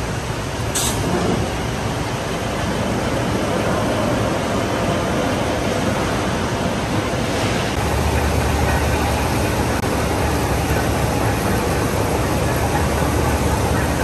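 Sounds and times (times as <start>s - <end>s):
rolling mill machinery din: 0.0s - 14.0s
heavy low rumble: 7.3s - 14.0s.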